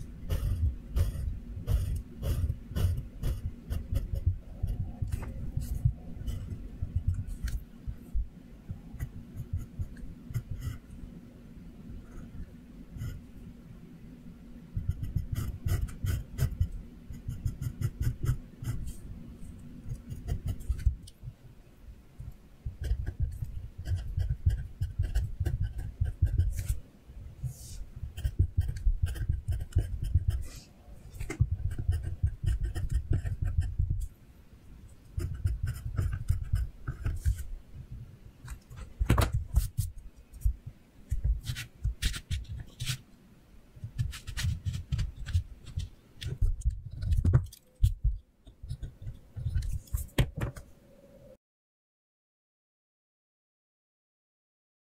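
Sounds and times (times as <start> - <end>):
pencil scratching on paper: 0.2 - 7.6, 9.0 - 10.9, 14.8 - 19.0, 19.9 - 21.0, 22.8 - 26.8, 27.5 - 33.8, 35.2 - 37.5, 41.4 - 43.0, 43.9 - 47.2
dull low thumps: 0.2 - 10.6, 31.2 - 34.0, 40.4 - 42.0.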